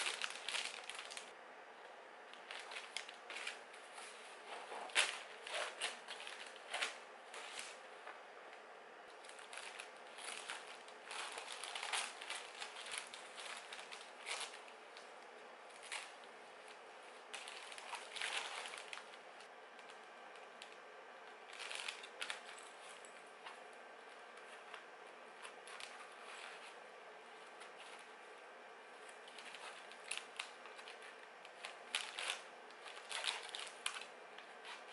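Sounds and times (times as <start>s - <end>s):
fabric bag rustling: 0.0s - 1.3s, 9.2s - 14.7s
plastic packaging crinkling: 0.0s - 1.4s, 2.3s - 7.9s, 9.1s - 15.1s, 15.7s - 20.8s, 21.4s - 24.8s, 29.0s - 34.9s.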